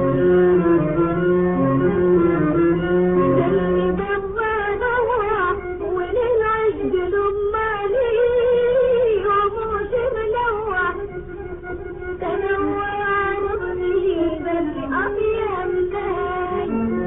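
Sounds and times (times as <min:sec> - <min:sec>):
held instrumental notes: 0:00.0 - 0:07.6, 0:10.0 - 0:17.0
woman singing ornamented melody: 0:12.2 - 0:17.0.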